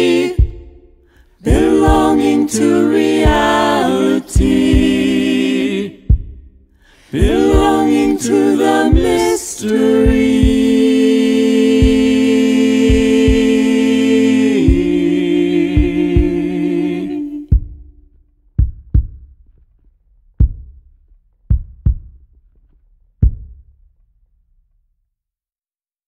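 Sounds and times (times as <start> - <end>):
a cappella singers holding chord: 0.0 - 0.8, 1.4 - 6.1, 6.9 - 17.6
deep thumps: 0.0 - 5.3, 5.9 - 10.9, 11.7 - 13.8, 14.6 - 19.6, 20.4 - 22.4, 23.2 - 23.8.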